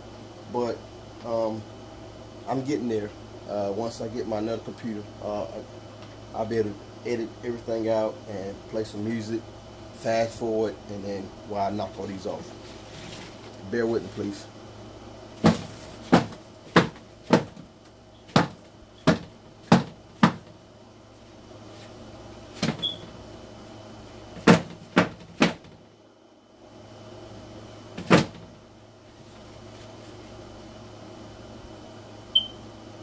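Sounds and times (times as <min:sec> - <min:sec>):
egg flats knocking on bucket: 0:15.4 - 0:17.7, 0:18.3 - 0:20.5, 0:24.4 - 0:25.8.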